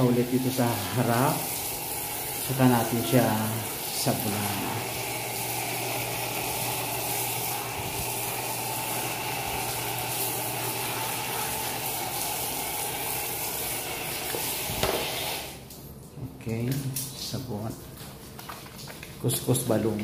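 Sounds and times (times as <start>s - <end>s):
shower spraying water on skin: 0.0s - 15.7s.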